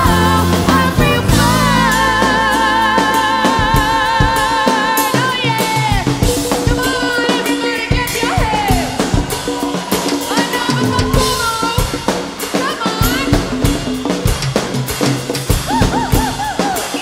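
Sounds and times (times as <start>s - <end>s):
bass guitar: 0.0s - 7.0s
woman singing: 0.0s - 13.9s
drum kit with rimshots: 0.0s - 17.0s
live pop-rock band: 0.0s - 17.0s.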